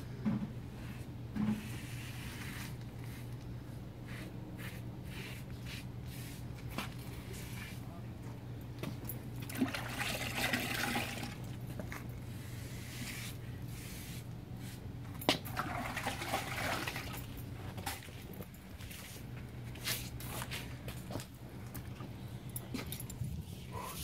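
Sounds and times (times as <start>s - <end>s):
steady low hum: 0.0s - 24.0s
water trickling and splashing: 15.5s - 17.4s.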